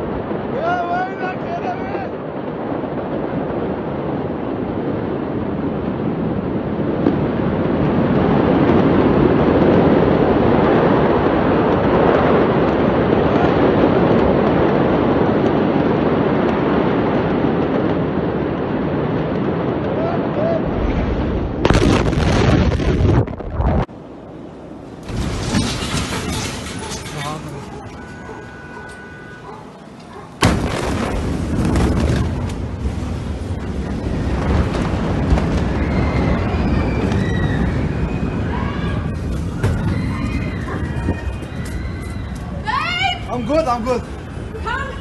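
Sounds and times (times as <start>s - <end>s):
wind buffeting microphone: 0.0s - 45.0s
very loud explosion bang: 20.7s - 23.9s, 30.4s - 32.8s
cracks and clatter: 25.0s - 33.0s.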